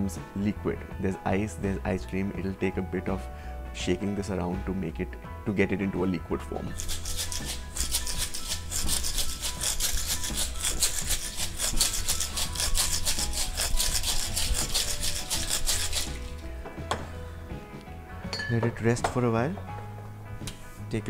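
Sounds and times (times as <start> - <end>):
ice rattling in cocktail shaker: 6.8 - 16.4.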